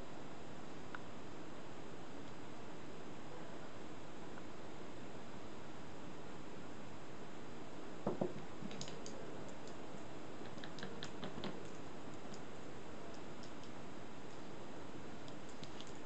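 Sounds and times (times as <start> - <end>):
steady background hiss: 0.0 - 16.0
paintbrush knocking on table: 8.0 - 8.4
brush clicking in paint pans: 8.6 - 12.5.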